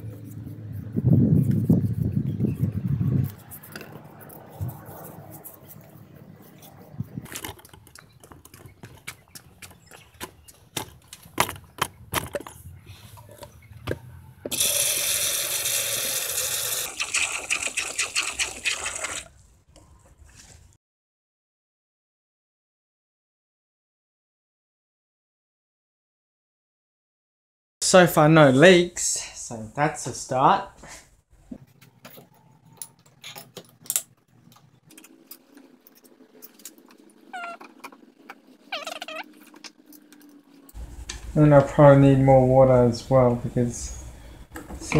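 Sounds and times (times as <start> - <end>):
water gushing from tap: 14.5 - 19.3.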